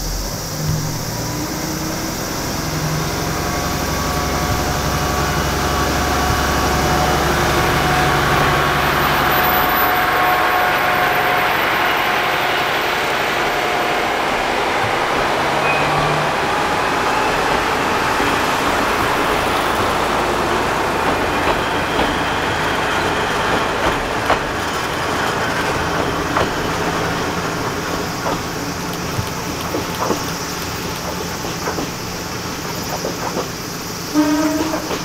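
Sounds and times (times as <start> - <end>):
diesel railcar engines running: 0.0 - 35.0
wheel clicks over rail joints: 27.6 - 33.8.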